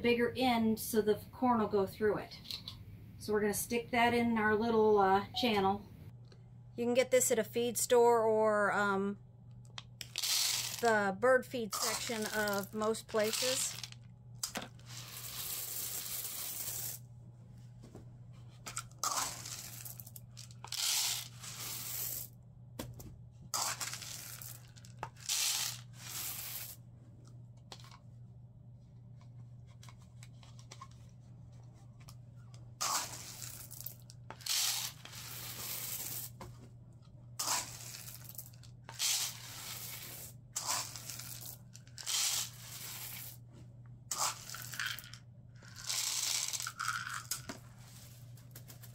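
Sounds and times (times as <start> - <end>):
dried corn kernels rattling: 10.0 - 11.0, 11.7 - 17.0, 19.0 - 22.3, 23.6 - 26.8, 32.8 - 36.3, 37.4 - 43.4, 44.1 - 47.4.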